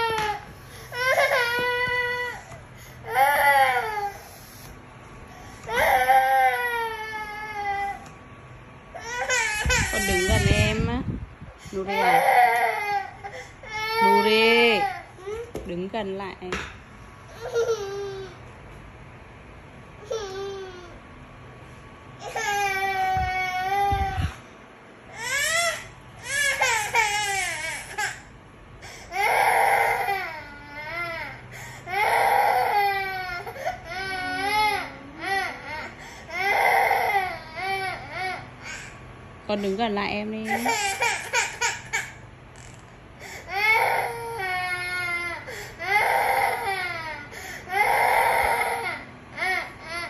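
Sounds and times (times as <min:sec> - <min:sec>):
toddler crying: 0:00.0 - 0:04.2, 0:05.6 - 0:08.1, 0:11.8 - 0:15.5, 0:29.1 - 0:38.9, 0:43.5 - 0:50.0.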